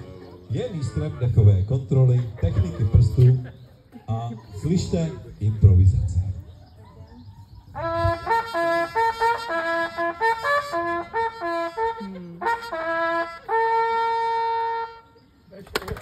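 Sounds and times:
trumpet playing: 0.0 - 1.4, 7.8 - 15.2.

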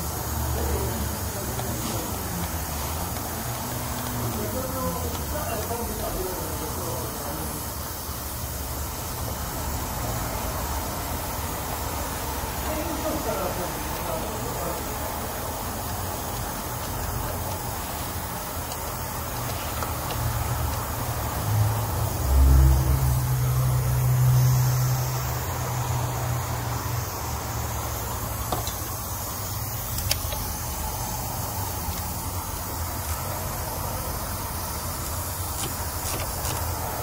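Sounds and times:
low mechanical hum: 0.0 - 37.0.

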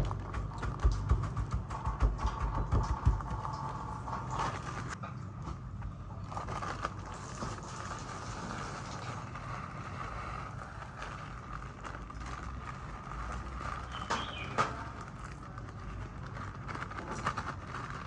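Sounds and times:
salt granules pattering: 0.0 - 5.0, 6.2 - 18.0
plastic bag crinkling: 6.1 - 18.0.

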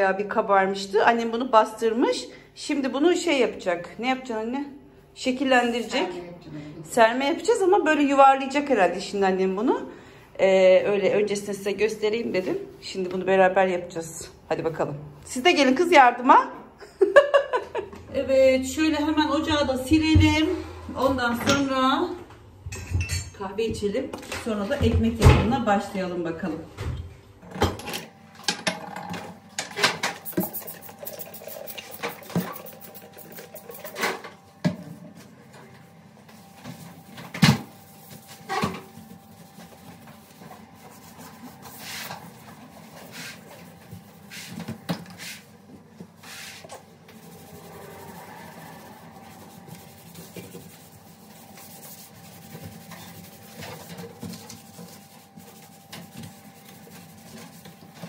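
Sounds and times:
sponge rubbing glass: 46.2 - 54.0.

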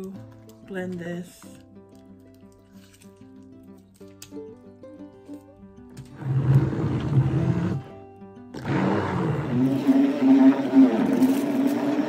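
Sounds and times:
immersion blender blending fruit: 6.1 - 7.9, 8.6 - 12.0.

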